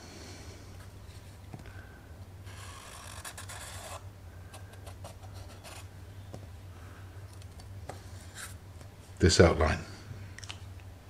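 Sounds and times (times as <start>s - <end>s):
marker scratching on wood: 2.5s - 5.9s.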